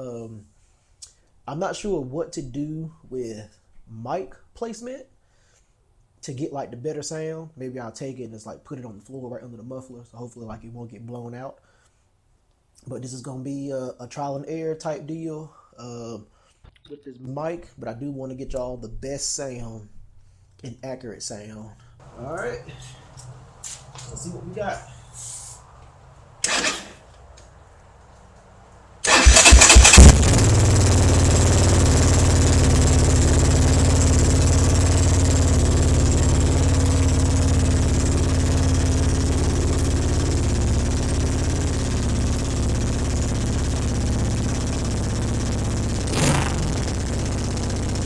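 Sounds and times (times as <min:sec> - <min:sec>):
engine starting and idling: 0:26.4 - 0:27.0, 0:29.0 - 0:48.0.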